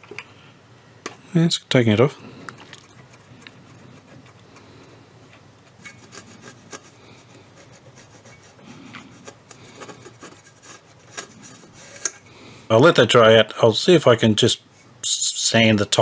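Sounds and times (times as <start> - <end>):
cotton swab scratchy rubbing: 2.9 - 4.4, 5.8 - 12.0.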